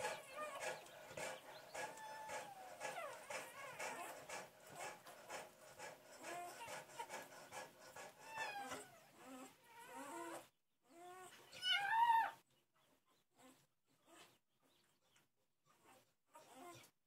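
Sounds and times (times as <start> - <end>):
puppies squealing and crying: 0.0 - 5.0, 5.8 - 10.4, 11.0 - 12.4.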